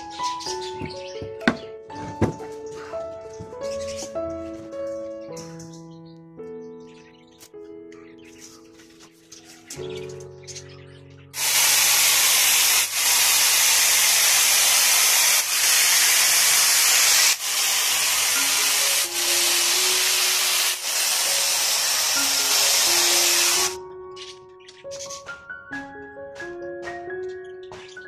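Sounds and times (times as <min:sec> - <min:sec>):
soft mallet background music: 0:00.0 - 0:11.4, 0:18.4 - 0:28.0
angle grinder cutting plastic: 0:11.4 - 0:23.8.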